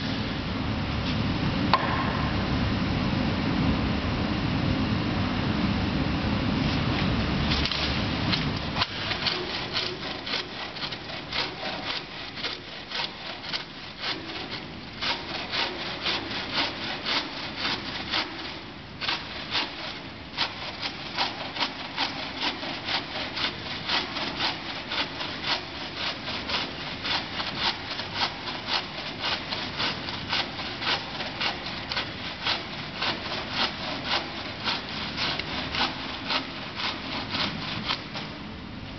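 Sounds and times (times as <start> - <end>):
hand saw cutting wood: 7.6 - 38.5.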